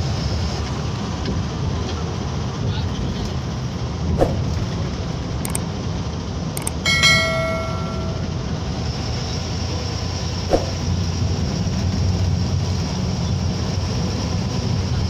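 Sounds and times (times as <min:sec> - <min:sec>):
bus engine and road noise: 0:00.0 - 0:15.0
sharp clicks: 0:05.5 - 0:05.7, 0:06.6 - 0:06.8
bell ding: 0:06.6 - 0:08.6.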